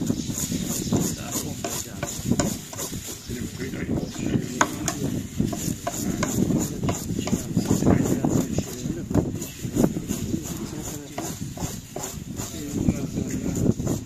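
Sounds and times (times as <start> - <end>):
knife scraping fish scales: 0.0 - 3.6, 4.4 - 14.0.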